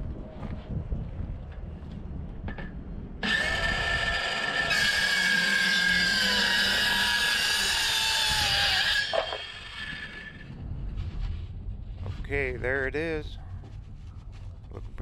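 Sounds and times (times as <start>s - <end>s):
circular saw cutting plywood: 3.2s - 10.5s.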